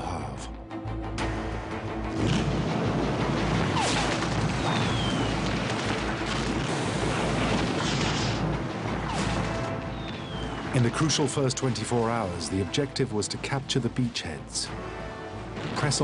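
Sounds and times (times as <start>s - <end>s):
explosions: 2.1s - 12.1s, 15.5s - 16.0s
gunfire: 2.2s - 10.8s.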